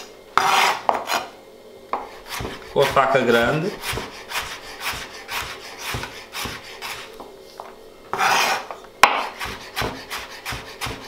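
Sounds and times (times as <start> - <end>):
knife rasping stroke: 0.4 - 1.3, 2.0 - 7.2, 8.1 - 11.0
knife slicing carrot on board: 3.7 - 7.2, 8.1 - 11.0.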